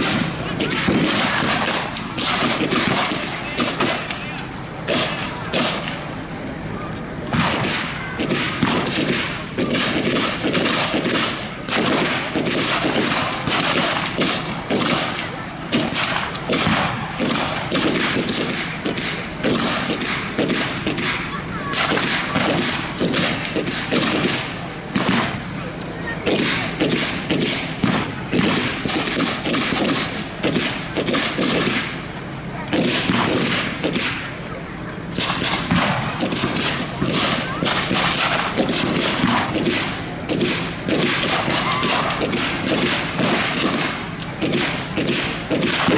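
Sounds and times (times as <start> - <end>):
rifle blank gunfire: 35.2 - 45.9.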